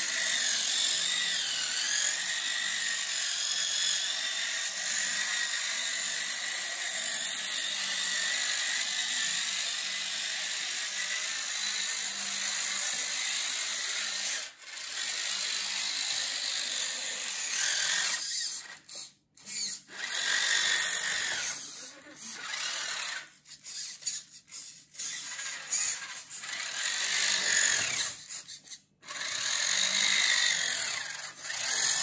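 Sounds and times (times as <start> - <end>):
electric motor and gears whining: 0.0 - 32.0.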